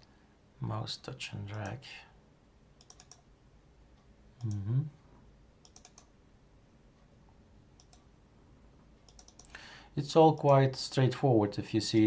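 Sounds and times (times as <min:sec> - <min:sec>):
man talking: 0:00.6 - 0:02.2, 0:04.4 - 0:05.0, 0:10.0 - 0:12.0
computer mouse clicking: 0:02.8 - 0:03.3, 0:05.6 - 0:06.1, 0:07.8 - 0:08.1, 0:09.0 - 0:09.6.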